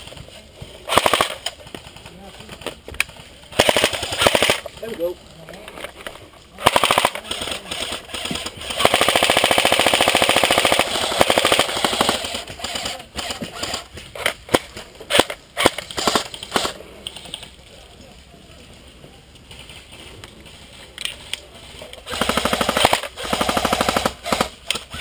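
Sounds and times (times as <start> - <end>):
airsoft rifle full-auto burst: 0.9 - 1.5, 3.5 - 4.7, 6.6 - 14.4, 15.1 - 16.8, 22.0 - 25.0
rifle handling clicks and knocks: 4.6 - 6.4, 19.4 - 22.0.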